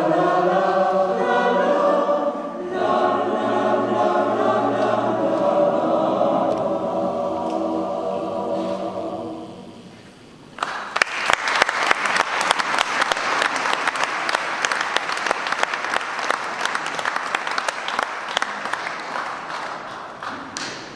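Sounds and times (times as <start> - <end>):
audience applauding: 10.6 - 20.8.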